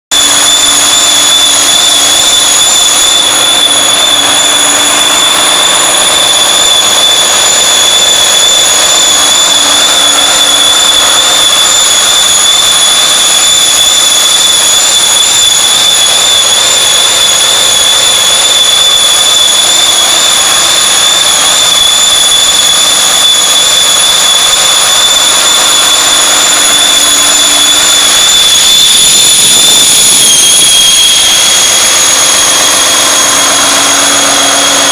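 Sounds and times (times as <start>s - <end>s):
high-pitched whine: 0.1s - 34.9s
diesel engine running: 0.2s - 12.1s.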